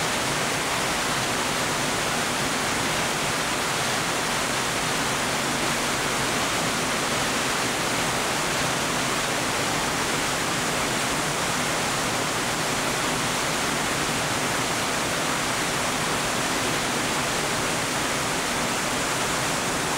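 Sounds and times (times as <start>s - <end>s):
waterfall rushing: 0.0s - 19.9s.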